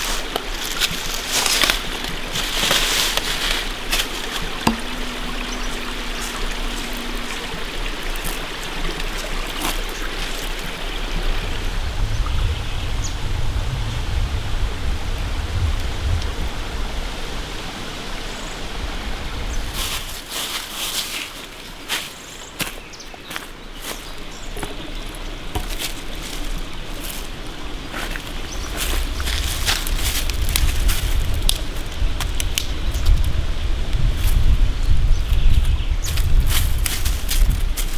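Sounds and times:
creek running: 0.0s - 37.9s
low rumble: 3.5s - 9.7s.

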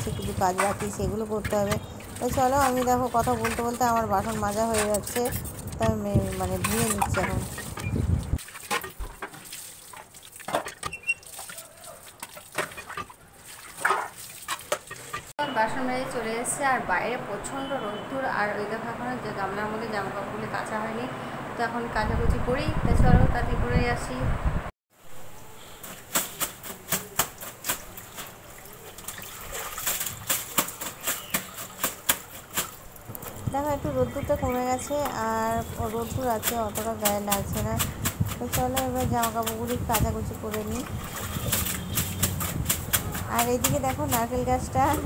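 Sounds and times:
tap water splashing: 0.1s - 15.3s, 25.8s - 44.3s.

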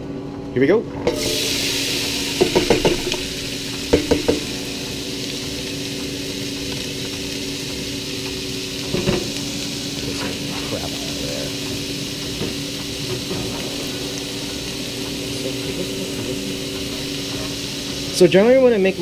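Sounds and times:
vegetables sizzling in oil: 1.1s - 19.0s
utensil knocking against pot: 2.4s - 3.2s, 3.9s - 4.5s.

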